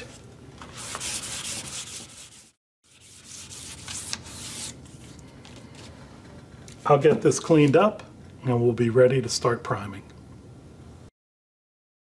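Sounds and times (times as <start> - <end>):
sandpaper scraping wood: 0.7 - 5.1.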